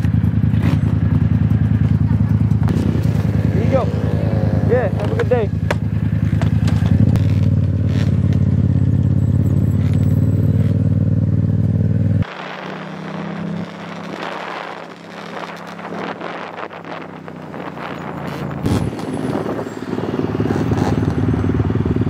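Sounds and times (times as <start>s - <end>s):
motorcycle engine running: 0.0s - 22.0s
wind noise: 12.2s - 22.0s.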